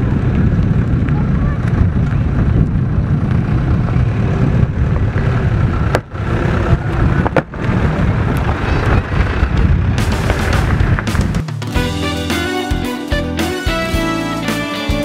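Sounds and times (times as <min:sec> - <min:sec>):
minivan engine and tyres rumbling: 0:00.0 - 0:12.0.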